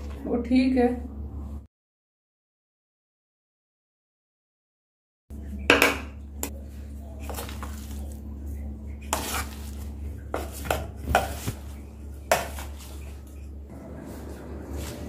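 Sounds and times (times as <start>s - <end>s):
steady low hum: 5.3s - 15.0s
scraping in a bowl: 8.9s - 15.0s.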